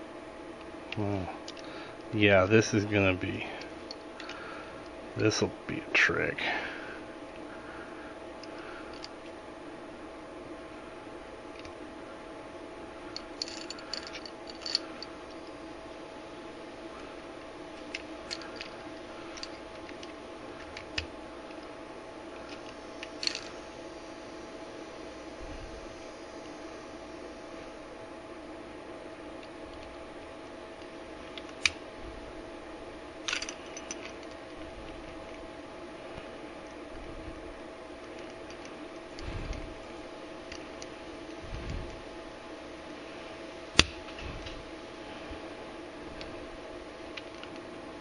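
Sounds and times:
steady low hum: 0.0s - 48.0s
small metal clicks of pistol parts: 13.1s - 14.9s, 17.8s - 21.7s, 22.4s - 23.5s, 33.3s - 34.4s, 47.1s - 47.6s.

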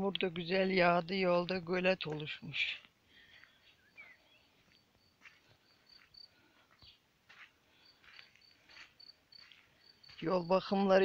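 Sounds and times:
footsteps on gravel: 0.1s - 11.0s
bird chirp: 3.3s - 7.1s
insect chirping: 3.6s - 7.0s, 7.7s - 10.7s.

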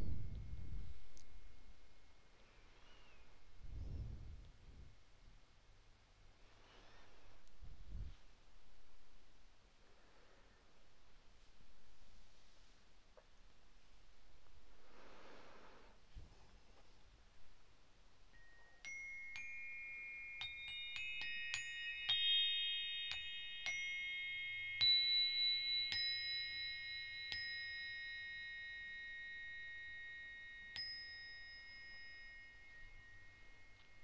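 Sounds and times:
metal chimes ringing: 18.3s - 34.0s.

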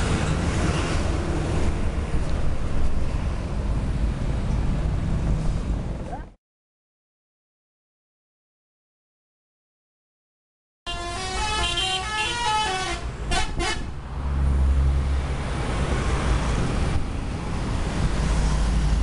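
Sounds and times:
bus engine rumble: 0.0s - 6.4s, 10.9s - 19.0s
road noise: 0.0s - 6.4s, 10.9s - 19.0s
short horn toots: 10.9s - 13.9s
multi-tone bus horn tune: 10.9s - 14.0s.

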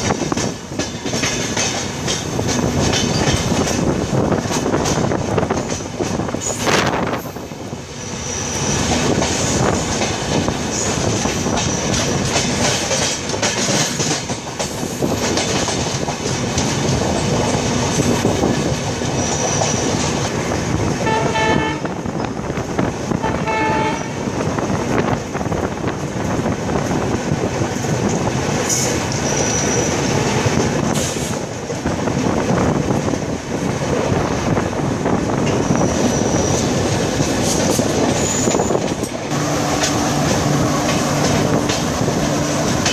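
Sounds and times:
train wheels rumbling on rails: 0.0s - 42.9s
train horn blasts: 21.0s - 22.1s, 23.1s - 24.4s.

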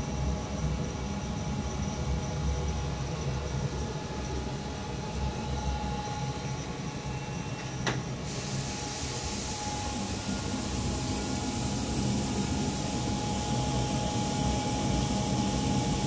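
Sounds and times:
aerator humming: 3.2s - 16.0s
airflow hiss: 8.1s - 16.0s.

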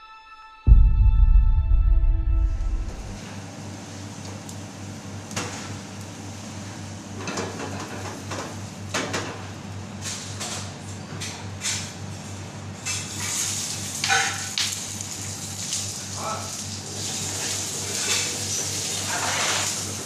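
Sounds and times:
low hum: 0.7s - 3.8s
frying pans clattering and scraping: 7.2s - 12.0s, 12.8s - 15.0s, 16.2s - 20.0s
pan flaring up hiss: 16.9s - 20.0s.

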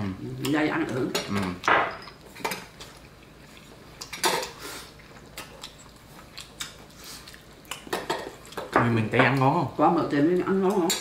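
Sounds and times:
chopsticks clinking on bowls and pots: 10.5s - 11.0s.

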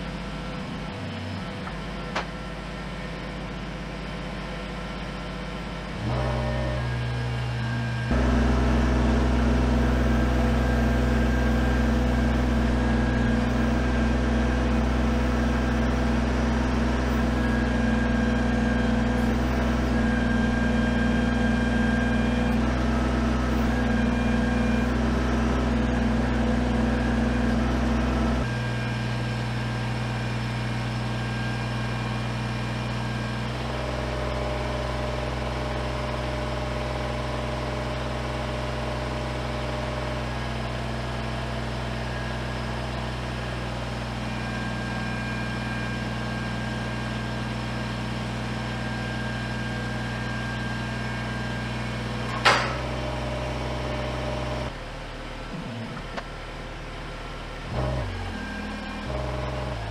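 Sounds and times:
tractor diesel engine running: 0.0s - 59.9s
loader hydraulics: 50.2s - 54.7s.

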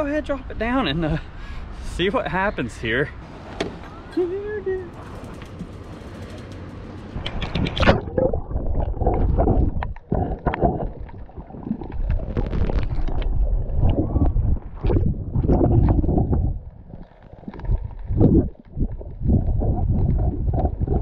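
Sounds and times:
muffled underwater sloshing: 7.4s - 21.0s.

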